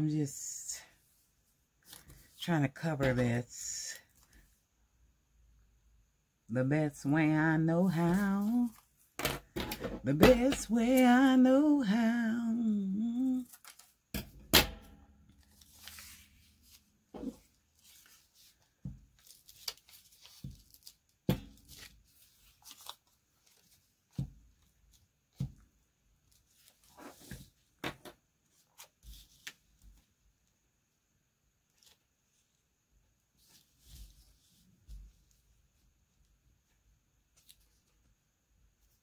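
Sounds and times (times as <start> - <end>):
paper rustling and tearing: 15.4 - 23.9.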